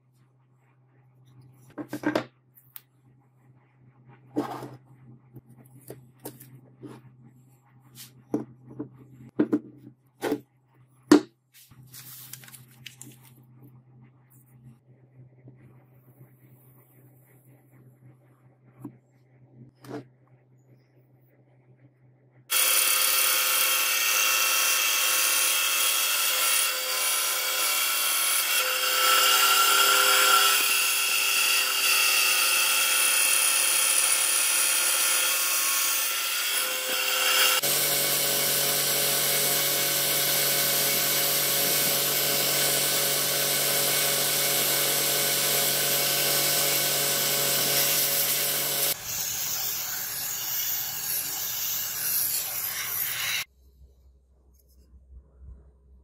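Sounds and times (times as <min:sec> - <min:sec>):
belt sander grinding wood: 0:22.5 - 0:53.5
scroll saw cutting wood: 0:22.5 - 0:53.5.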